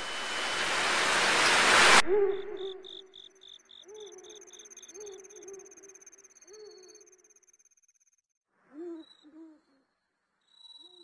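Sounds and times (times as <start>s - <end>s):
loud rushing noise: 0.0s - 2.5s
insects chirping: 0.0s - 8.2s.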